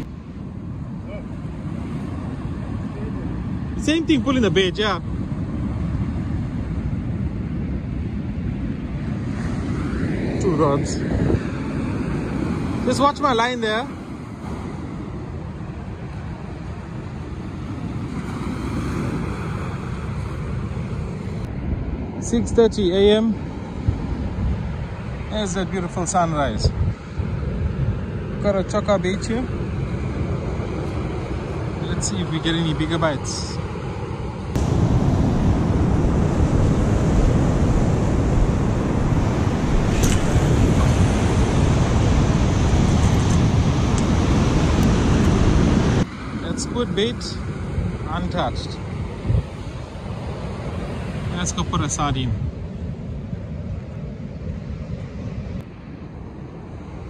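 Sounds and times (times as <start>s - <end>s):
ocean surf washing up beach: 0.0s - 57.0s
wind buffeting microphone: 0.0s - 57.0s
surf breaking on beach: 34.4s - 52.3s.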